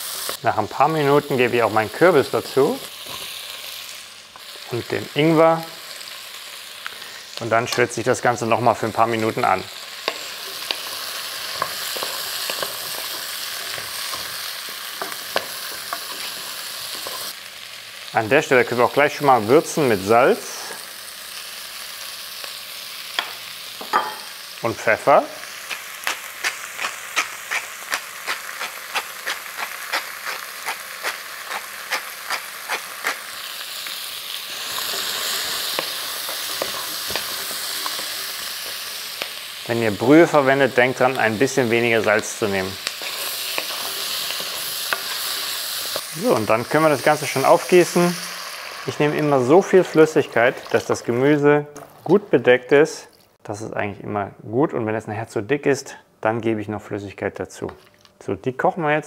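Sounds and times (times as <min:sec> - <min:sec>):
vegetables sizzling in oil: 0:00.0 - 0:53.3
wooden spoon stirring vegetables: 0:08.8 - 0:17.3, 0:34.5 - 0:39.6, 0:40.4 - 0:52.3
pepper mill grinding: 0:25.4 - 0:39.4, 0:40.4 - 0:49.3.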